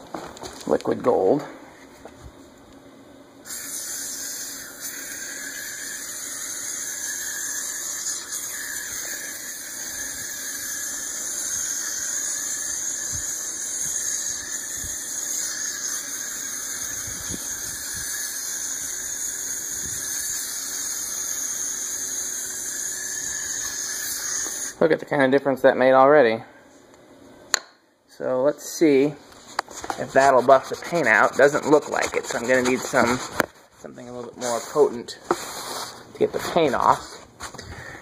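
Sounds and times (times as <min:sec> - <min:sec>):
aerosol can spraying: 0:03.5 - 0:24.8.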